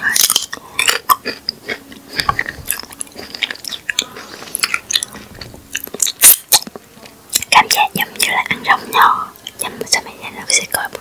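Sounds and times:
crisp wet chewing crunches: 0.1 - 8.1.

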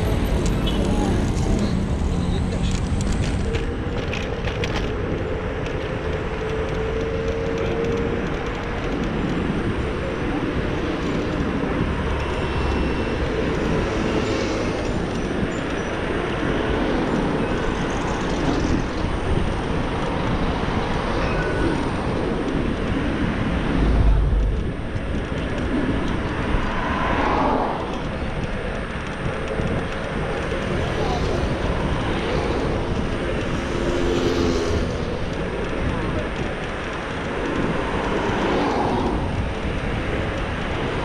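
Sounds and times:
cars passing: 0.0 - 41.0
road noise: 0.0 - 41.0
wind rushing on microphone: 0.0 - 41.0.

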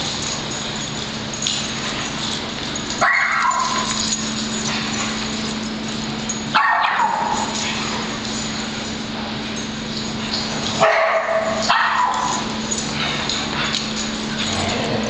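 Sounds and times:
steady low hum: 0.0 - 15.0
dog yelping barks: 3.0 - 4.0, 6.5 - 7.5, 10.8 - 12.5.

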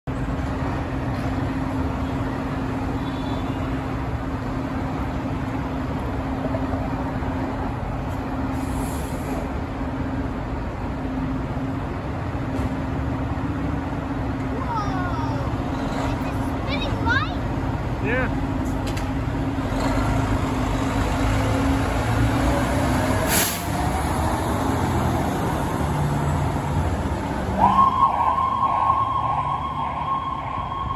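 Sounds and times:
diesel engines idling: 3.8 - 27.7
air brakes hissing: 8.5 - 9.5, 23.2 - 23.8
short hiss: 23.3 - 23.7.

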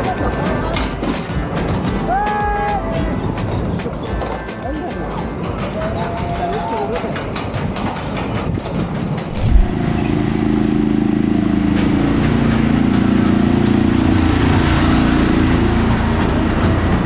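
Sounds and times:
ride motor humming: 9.1 - 14.6
machinery thump: 9.3 - 9.8.

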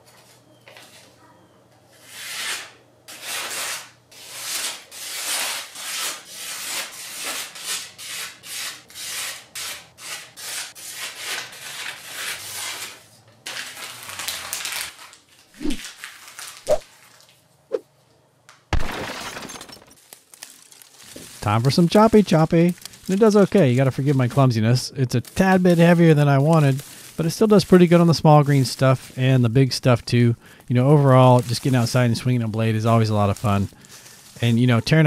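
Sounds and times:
machete slicing through paper: 2.2 - 17.0.

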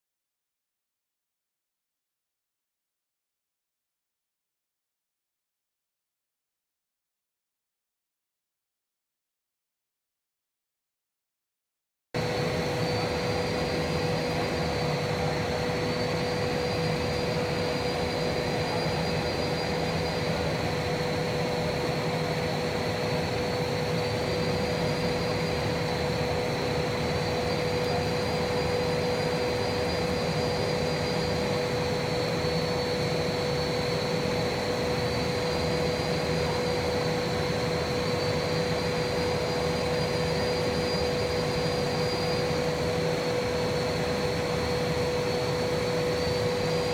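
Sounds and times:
faint high whine: 12.2 - 46.9
machine drone and hum: 12.2 - 46.9.

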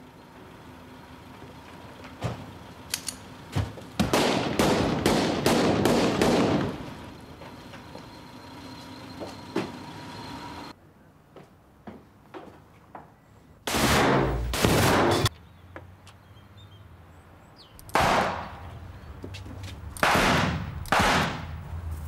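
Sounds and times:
handgun shots echoing: 20.0 - 21.5.

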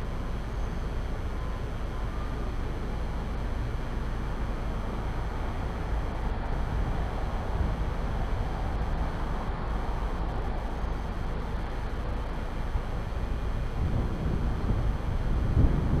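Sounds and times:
distant highway traffic hum: 0.0 - 16.0.

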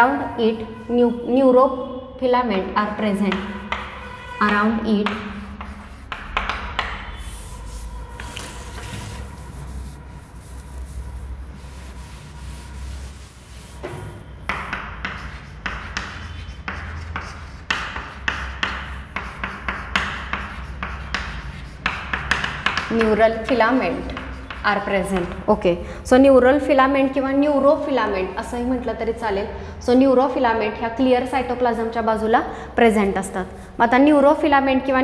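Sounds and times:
chalk scratching on chalkboard: 3.1 - 25.5.

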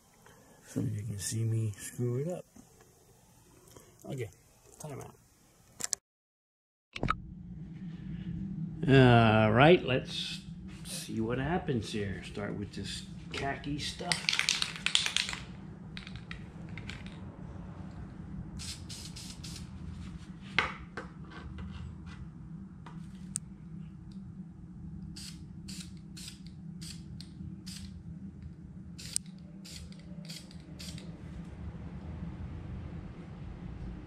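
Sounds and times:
low hum: 7.0 - 34.0
spray paint can spraying: 14.1 - 15.4, 18.6 - 19.7, 29.0 - 31.0.

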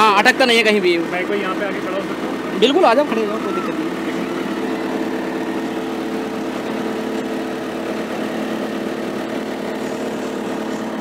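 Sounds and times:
diesel engine idling: 0.0 - 11.0.

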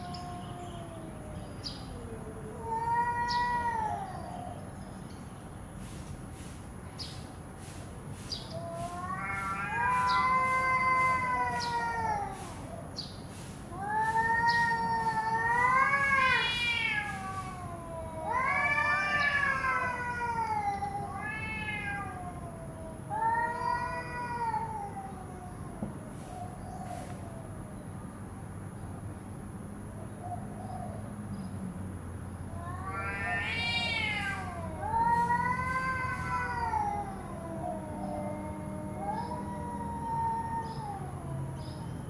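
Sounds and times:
cats yowling: 0.0 - 4.7, 8.4 - 27.6, 32.5 - 42.0.

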